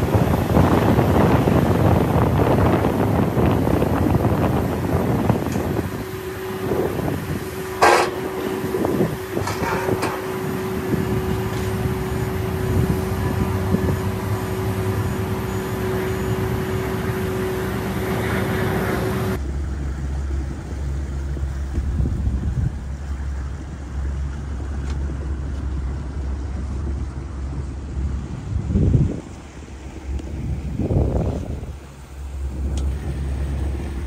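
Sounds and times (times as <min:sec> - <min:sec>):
cargo machinery humming: 0:00.0 - 0:21.7
boat engine low rumble: 0:00.0 - 0:34.0
sharp knocks: 0:07.8 - 0:08.6.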